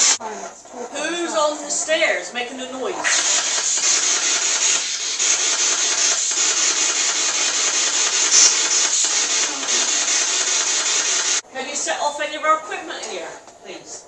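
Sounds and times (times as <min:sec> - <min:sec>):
radio static hiss: 0:00.0 - 0:00.9, 0:02.9 - 0:11.4.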